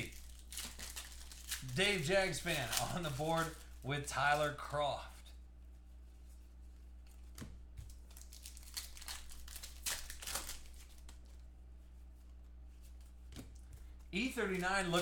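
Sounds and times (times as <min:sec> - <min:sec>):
plastic wrapper crinkling and tearing: 0:00.0 - 0:04.8, 0:07.8 - 0:11.4, 0:14.4 - 0:15.0.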